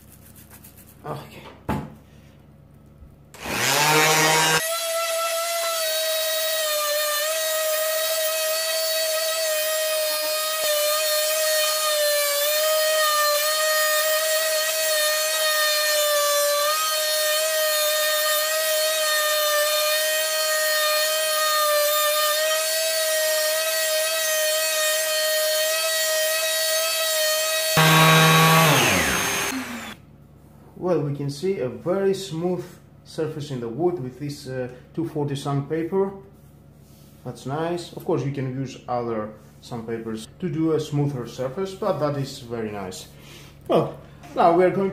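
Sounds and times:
sander sanding wood: 0:03.4 - 0:30.0.

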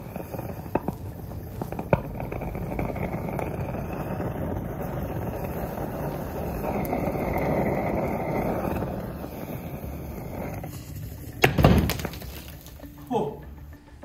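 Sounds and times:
burning metal hissing: 0:00.0 - 0:13.8
sharp pop: 0:11.4 - 0:12.8.

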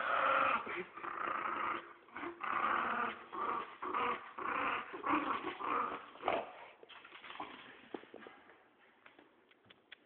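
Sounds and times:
dog growling: 0:00.0 - 0:06.6.

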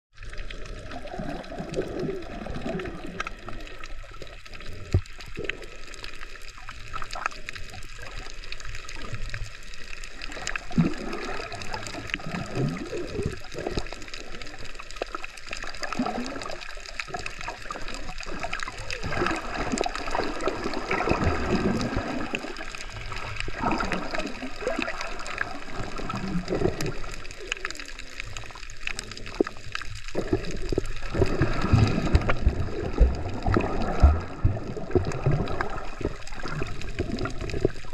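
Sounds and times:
muffled underwater water sloshing: 0:00.1 - 0:37.9.

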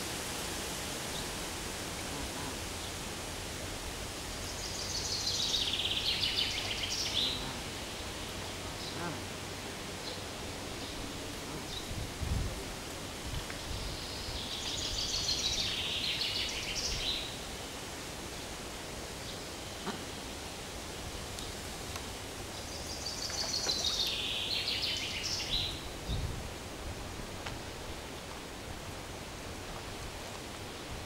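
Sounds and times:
steady outdoor hiss: 0:00.0 - 0:31.0
songbird singing: 0:04.4 - 0:12.0, 0:13.5 - 0:17.5, 0:21.0 - 0:26.3.

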